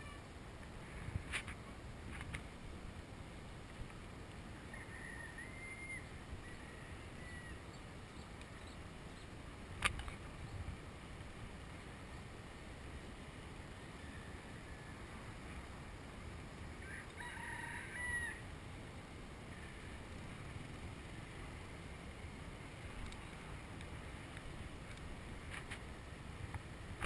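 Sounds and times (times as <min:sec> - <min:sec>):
wind and road noise: 0:00.0 - 0:27.0
rooster crowing: 0:04.6 - 0:07.7, 0:16.8 - 0:18.4.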